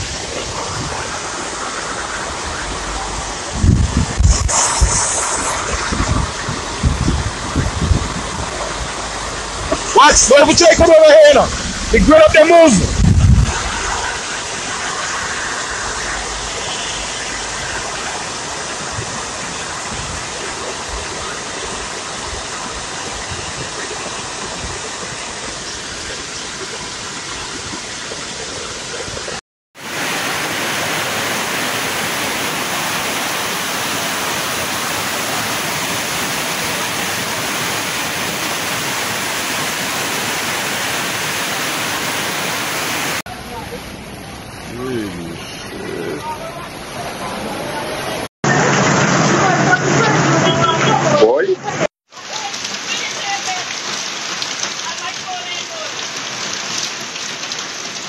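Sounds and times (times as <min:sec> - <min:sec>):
floodwater rushing along street: 0:00.0 - 0:58.0
heavy rain: 0:00.0 - 0:58.0.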